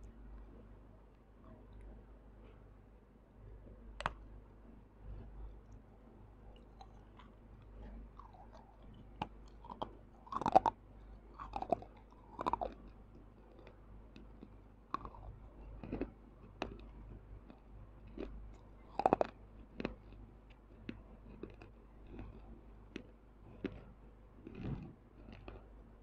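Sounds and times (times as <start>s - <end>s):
crunching pottery with teeth: 6.5s - 25.7s.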